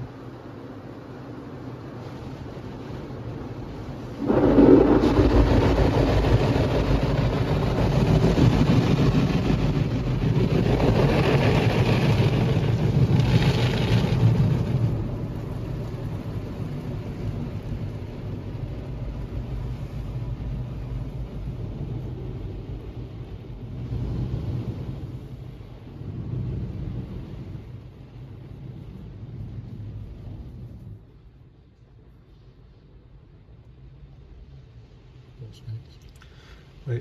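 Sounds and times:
car wash water spray and brushes: 0:00.0 - 0:37.0.

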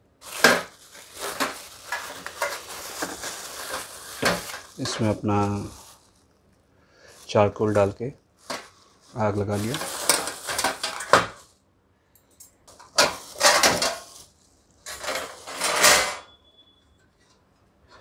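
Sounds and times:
plastic film crinkling: 0:00.0 - 0:11.6, 0:12.7 - 0:15.5
metal grill parts clattering: 0:09.6 - 0:11.4, 0:12.8 - 0:14.2, 0:14.9 - 0:16.3.

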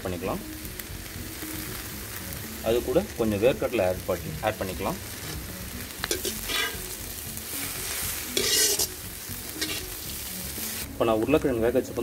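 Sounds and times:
vegetables sizzling in hot oil: 0:00.0 - 0:12.0
metal ladle stirring against pan: 0:05.1 - 0:10.9.

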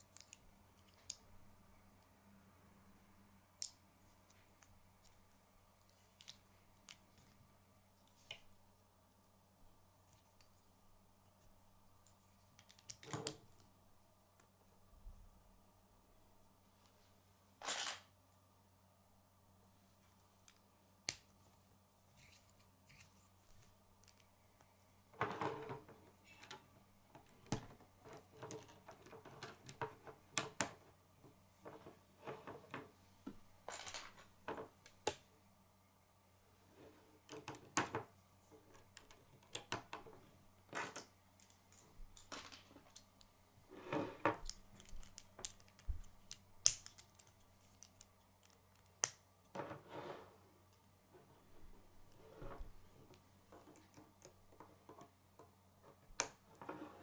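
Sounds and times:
plastic pieces clicking together: 0:44.4 - 0:49.2.

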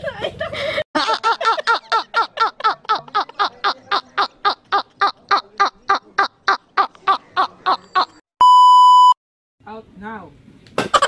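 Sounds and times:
man laughing hard: 0:00.1 - 0:08.2.

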